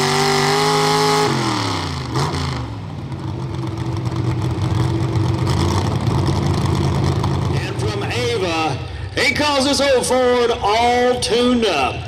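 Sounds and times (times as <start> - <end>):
pickup engine at full throttle: 0.0 - 9.3.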